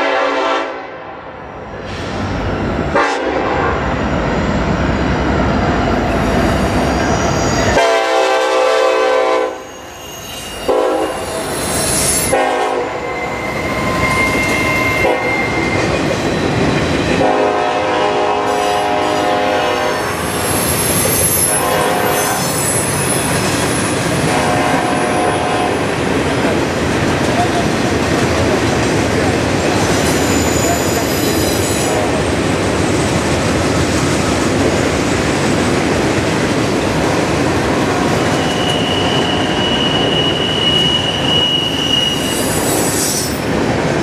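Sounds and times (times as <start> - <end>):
train horn blasts: 0.0 - 1.2, 2.9 - 3.9, 7.7 - 9.9, 10.6 - 11.5, 12.2 - 15.7, 17.2 - 20.3, 21.4 - 22.6, 24.3 - 25.9, 31.8 - 32.2
freight train rumbling past: 0.0 - 44.0
wheels squealing on rail: 1.8 - 26.0, 29.6 - 33.1, 37.8 - 43.6.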